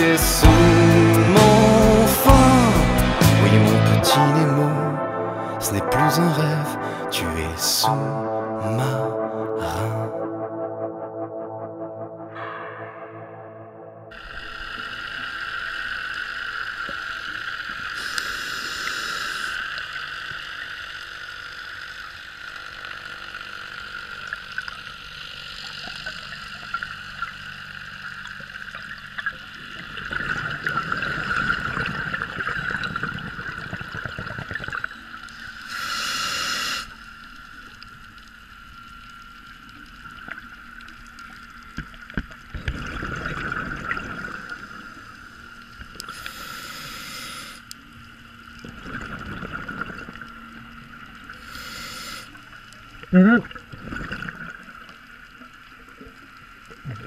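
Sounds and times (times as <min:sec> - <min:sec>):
underwater bubbling hiss: 0:14.1 - 0:57.0.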